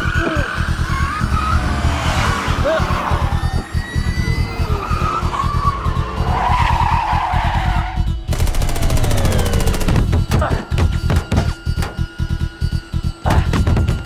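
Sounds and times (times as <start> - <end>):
car tyres squealing: 0.0 - 8.2
pulsing low music beat: 0.0 - 14.0
rapid automatic gunfire: 8.3 - 10.1.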